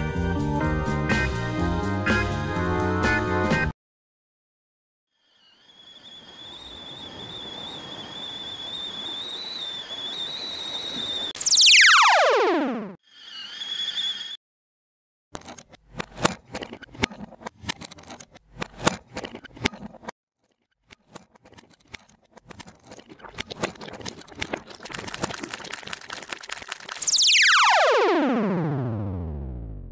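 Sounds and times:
falling synthesizer sweep: 0:11.4 - 0:14.0, 0:27.0 - 0:29.9
sharp electronic clicks and crackling: 0:23.4 - 0:27.7.

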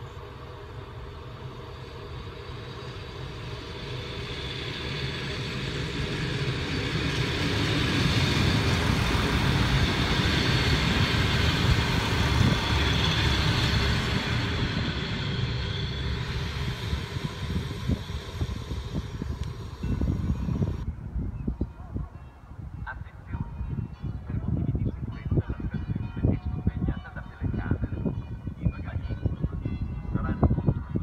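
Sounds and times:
diesel railcars passing: 0:00.0 - 0:20.9.

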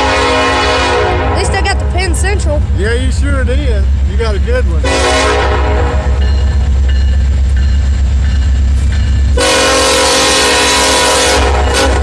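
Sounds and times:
locomotive air horn blast: 0:00.0 - 0:01.9, 0:04.8 - 0:06.2, 0:09.4 - 0:12.0
low locomotive rumble: 0:00.0 - 0:12.0.

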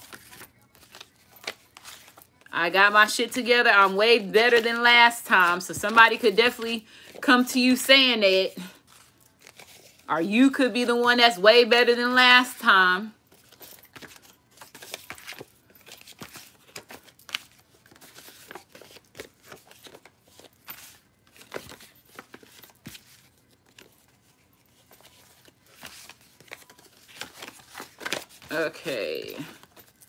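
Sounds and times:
paper rustling and crinkling: 0:00.0 - 0:02.5, 0:08.6 - 0:10.1, 0:13.2 - 0:30.0.

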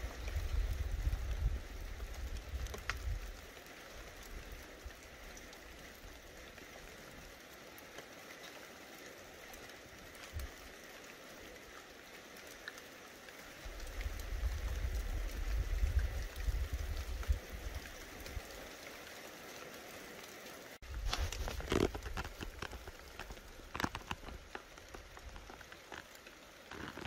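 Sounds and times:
light rain hissing: 0:00.0 - 0:27.0
raindrop ticks: 0:00.0 - 0:27.0.

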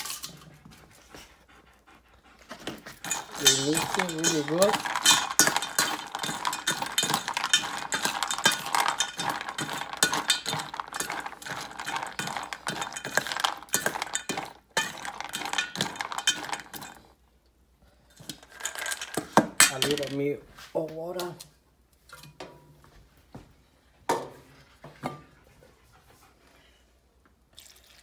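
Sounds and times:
spoon stirring kibble in steel bowl: 0:00.0 - 0:00.5, 0:02.7 - 0:17.2, 0:18.2 - 0:20.2.

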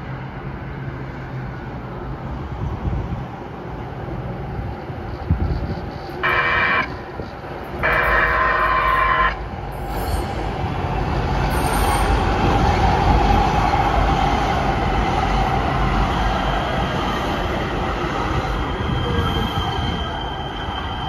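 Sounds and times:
train rumble: 0:00.0 - 0:21.0
train whine: 0:00.0 - 0:21.0
train horn blasts: 0:06.2 - 0:07.2, 0:07.8 - 0:09.5.

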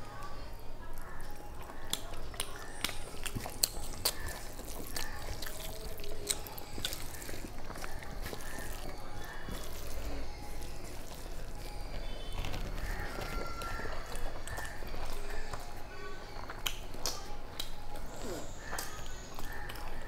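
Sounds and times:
fingers squishing wet rice: 0:01.0 - 0:15.8.

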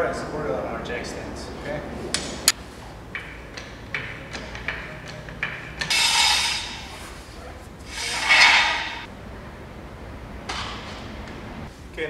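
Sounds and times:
metal stand scraping on floor: 0:05.9 - 0:09.1.

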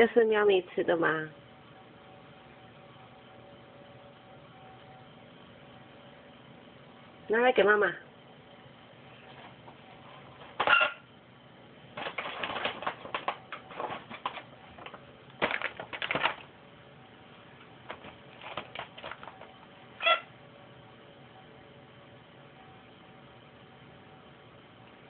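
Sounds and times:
plastic snack bag crinkling: 0:12.0 - 0:16.5, 0:17.9 - 0:19.5.

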